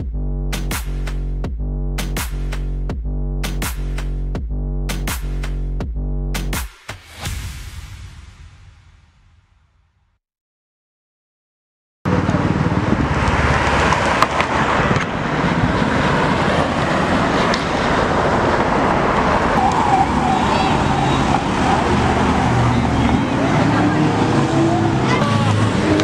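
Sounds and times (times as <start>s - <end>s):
cars driving past: 12.1s - 26.0s
wavering siren tone: 19.1s - 26.0s.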